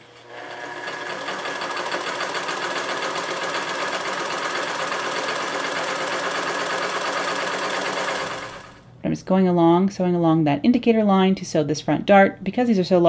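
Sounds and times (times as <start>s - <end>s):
sewing machine running: 0.0s - 8.8s.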